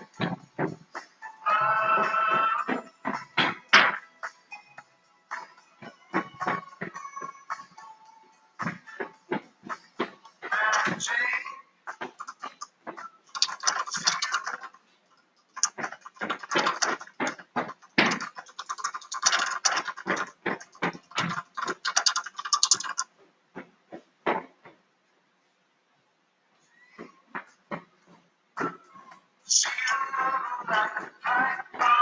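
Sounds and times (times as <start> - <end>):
handling clicks and taps: 15.6 - 24.8.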